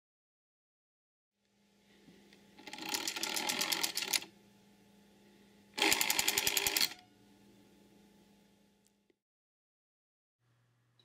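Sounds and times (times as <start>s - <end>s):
rotary dial whirring back: 2.6s - 4.3s, 5.8s - 7.0s.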